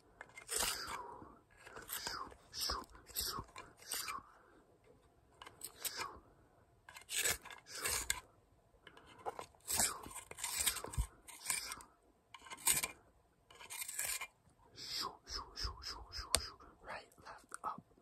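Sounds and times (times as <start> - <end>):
pencil sharpener scraping: 0.2 - 4.2, 5.4 - 6.1, 6.9 - 8.2, 8.9 - 11.8, 12.4 - 14.3.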